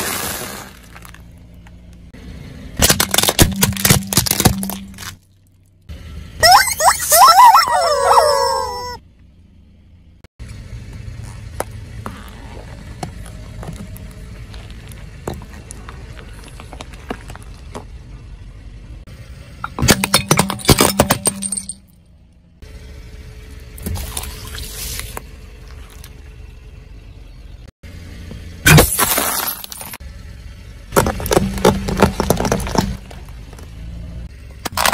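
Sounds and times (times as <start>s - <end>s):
car tyre rumbling and crackling: 0.0s - 6.9s, 7.8s - 34.9s
sharp cracking: 2.8s - 5.2s
rubber squeaky toys squealing: 6.4s - 9.0s.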